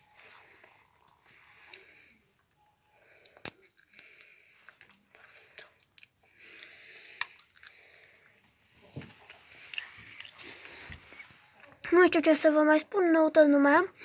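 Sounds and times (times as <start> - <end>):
crunching clicks and rustling: 3.2 - 5.2.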